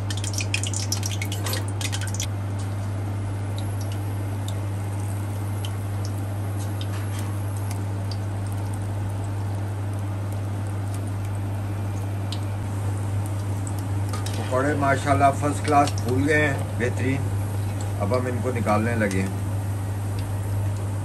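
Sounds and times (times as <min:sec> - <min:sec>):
batter sizzling in hot oil: 0:00.0 - 0:02.3, 0:03.2 - 0:21.0
crackles and pops of oil: 0:00.0 - 0:14.5
steady low hum: 0:00.0 - 0:21.0.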